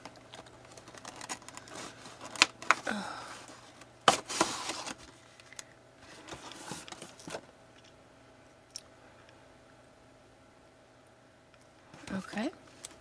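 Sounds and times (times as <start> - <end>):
cardboard and plastic crinkling: 0.0 - 7.4.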